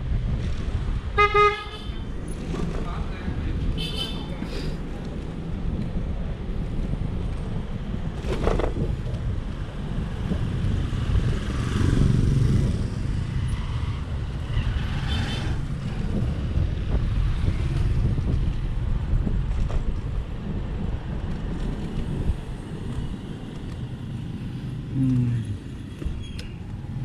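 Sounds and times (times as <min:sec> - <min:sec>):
road rumble: 0:00.0 - 0:27.0
wind on microphone: 0:04.8 - 0:24.9
motorcycle passing: 0:10.9 - 0:15.7.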